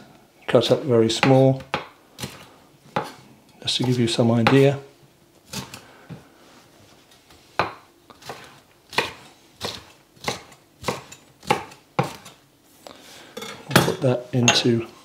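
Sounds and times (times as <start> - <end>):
knife chopping on cutting board: 1.2 - 3.2, 7.6 - 12.4.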